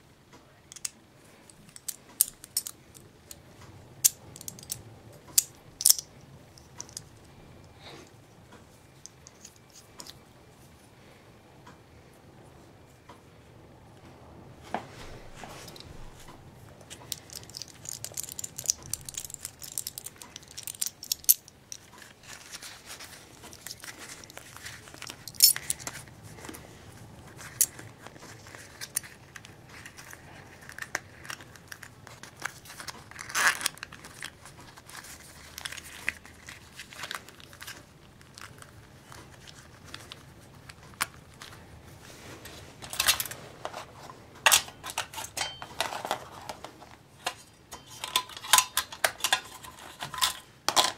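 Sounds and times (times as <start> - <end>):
small metal and plastic clicks: 0.7 - 3.4, 4.0 - 7.1, 16.9 - 22.1
blister pack crinkling: 15.6 - 42.1.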